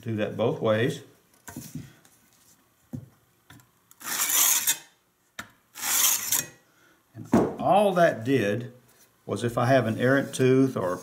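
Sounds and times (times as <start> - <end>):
sharpening stone rubbing saw plate: 4.0 - 4.9, 5.8 - 6.6.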